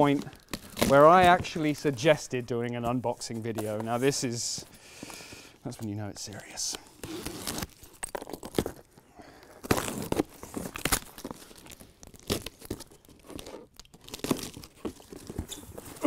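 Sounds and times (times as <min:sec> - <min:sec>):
cardboard flaps rustling: 0:00.0 - 0:02.2
packing tape ripping: 0:00.2 - 0:01.3, 0:06.9 - 0:16.0.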